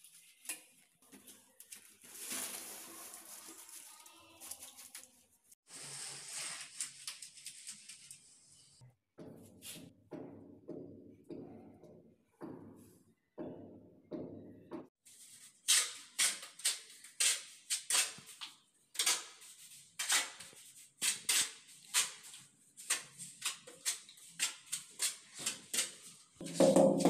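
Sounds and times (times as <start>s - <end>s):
sponge wiping tiles: 15.1s - 27.0s
trowel scraping mortar on tile: 15.2s - 27.0s.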